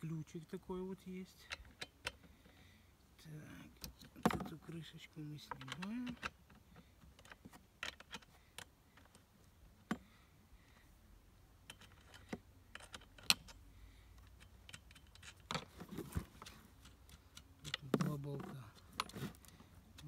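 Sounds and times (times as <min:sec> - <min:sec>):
sharp clicks and metallic taps: 0:16.3 - 0:20.0.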